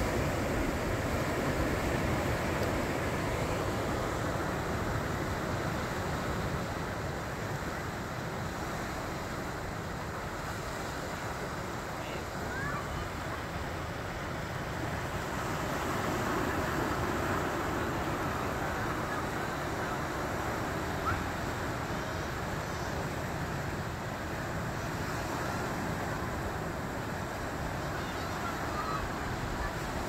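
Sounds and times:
ocean surf on rocky shore: 0.0s - 30.0s.

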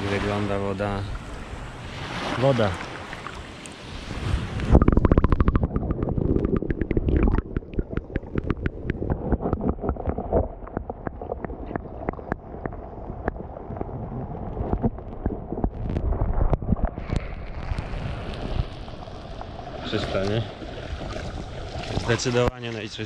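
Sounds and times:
water lapping: 0.0s - 15.3s
wind: 0.0s - 23.0s
underwater churning rumble: 4.0s - 22.4s
small crackling clicks: 5.1s - 13.4s.

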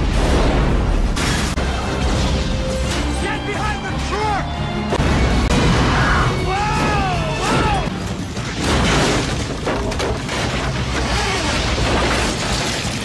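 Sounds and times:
orchestral score: 1.5s - 8.1s
debris crashing and smashing: 4.9s - 13.0s.

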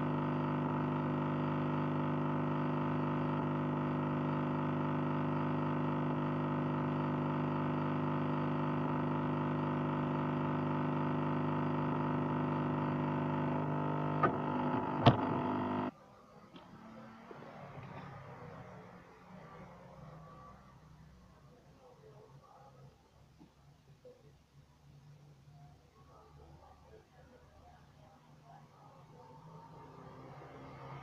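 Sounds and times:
steady buzzing hum: 0.0s - 15.9s.

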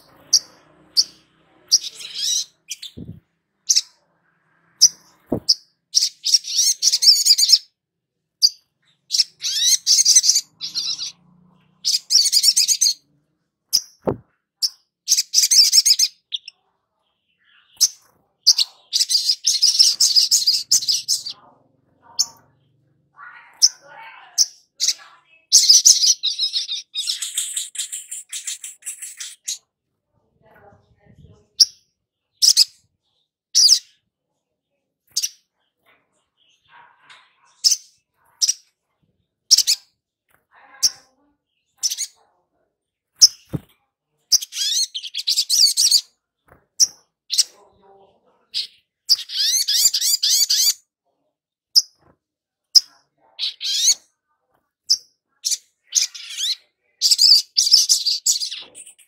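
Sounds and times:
bird chirping: 0.0s - 7.8s, 8.4s - 34.5s, 35.1s - 42.3s, 42.9s - 50.9s, 52.7s - 54.1s, 54.8s - 59.0s.

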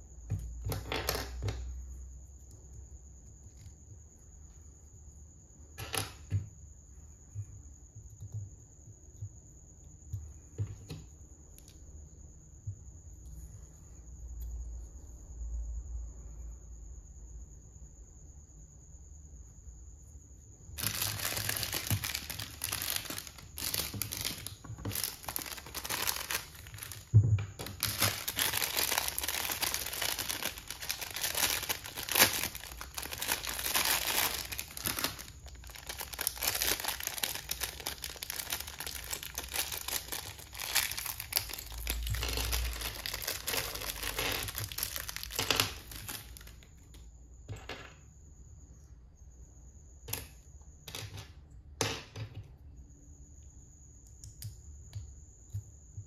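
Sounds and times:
plastic packaging crinkling and tearing: 20.8s - 46.6s.

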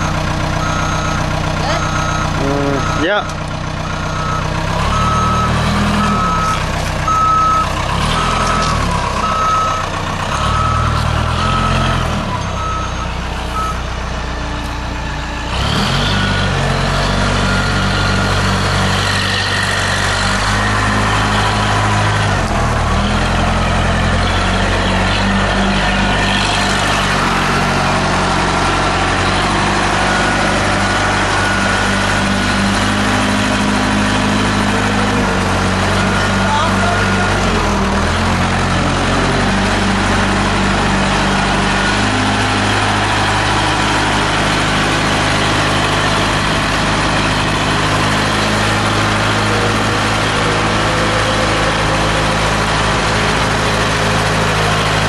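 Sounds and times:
reverse alarm beeping: 0.0s - 13.8s
forklift engine running: 0.0s - 55.0s.

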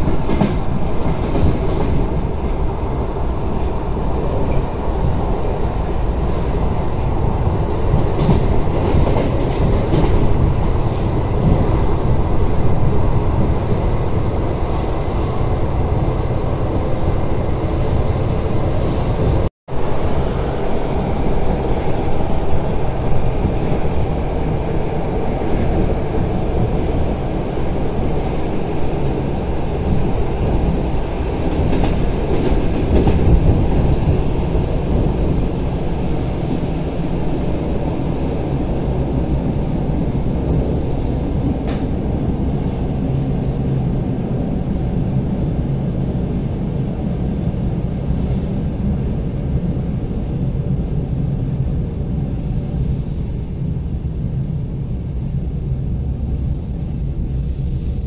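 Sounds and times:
train wheels rumbling: 0.0s - 58.0s
sharp click: 41.6s - 42.0s.

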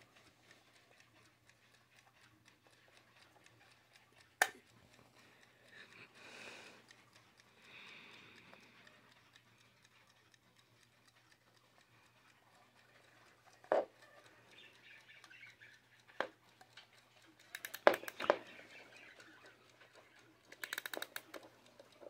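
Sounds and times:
clock ticking: 0.0s - 22.0s
winding key ratchet clicks: 8.7s - 22.0s.

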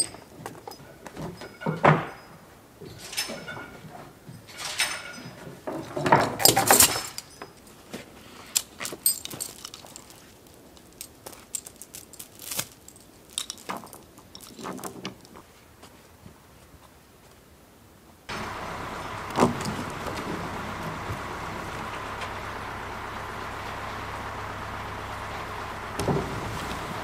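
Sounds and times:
metal tools clinking and rattling: 0.0s - 15.4s, 19.4s - 20.0s.

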